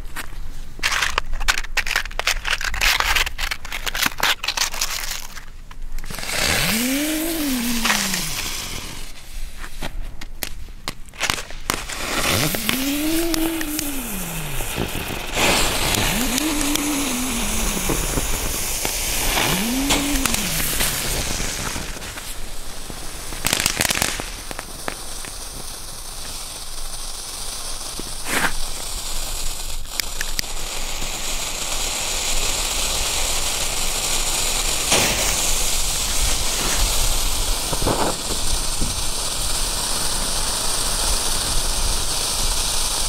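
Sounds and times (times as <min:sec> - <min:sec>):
lighter and fuses hissing: 0:06.0 - 0:10.6, 0:11.2 - 0:43.0
fuse spitting sparks: 0:06.0 - 0:43.0
low rising and falling tone: 0:06.6 - 0:09.1, 0:12.4 - 0:21.6
crunching on icy snow: 0:11.2 - 0:23.2.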